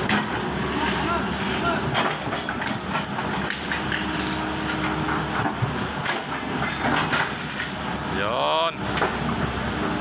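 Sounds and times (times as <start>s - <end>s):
excavator diesel engine under load: 0.0s - 10.0s
metallic clanks and rattles: 1.9s - 4.2s, 4.8s - 8.0s.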